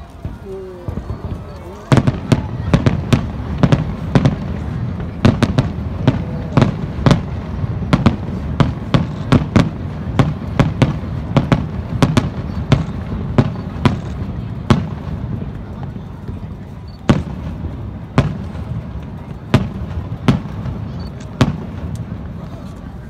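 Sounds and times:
firework shells bursting: 1.9s - 15.4s.

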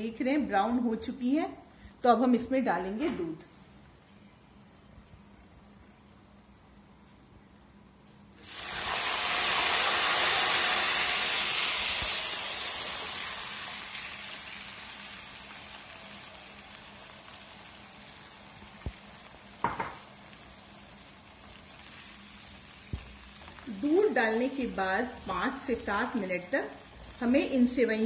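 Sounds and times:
milk sizzling in hot wok: 8.4s - 28.0s.

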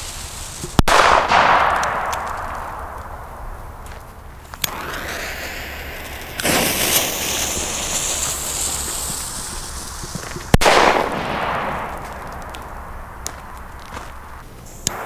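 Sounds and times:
firecracker bang: 0.0s - 15.0s
bang echo: 0.8s - 4.0s, 10.5s - 14.3s
fuse hissing: 4.6s - 10.5s.

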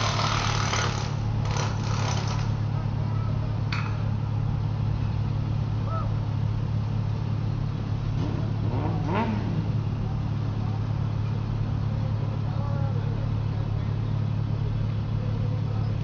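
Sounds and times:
truck engines idling: 0.0s - 16.0s
faint distant voices calling out: 5.8s - 6.2s.

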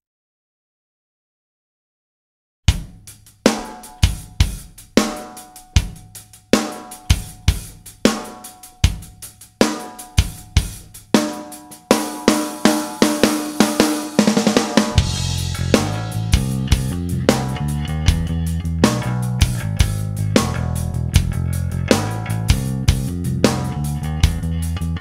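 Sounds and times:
drum kit hits: 2.7s - 25.0s
sustained pitched notes: 12.6s - 24.6s.

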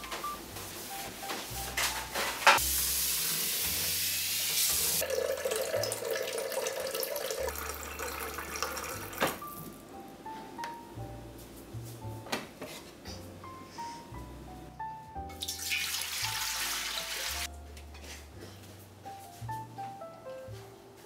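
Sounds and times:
soft background music: 0.0s - 21.0s
water pouring into glass jug: 5.0s - 9.2s, 15.4s - 17.2s.

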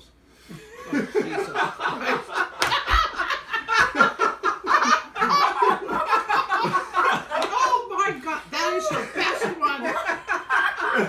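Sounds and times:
people laughing hard: 0.5s - 11.0s.

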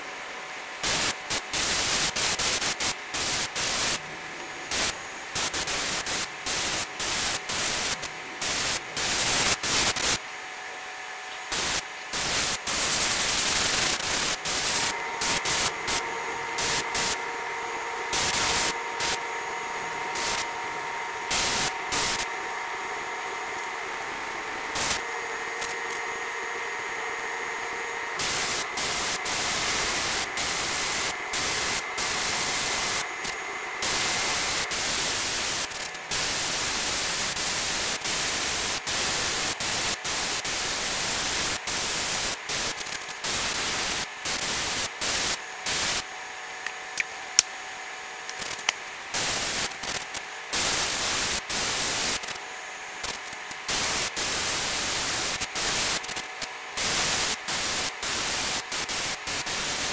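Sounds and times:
airbrush hissing: 11.5s - 42.7s.

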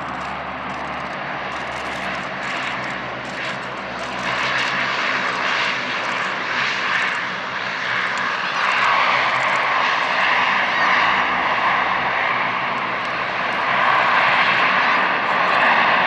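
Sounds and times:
propeller hum: 0.0s - 16.0s.

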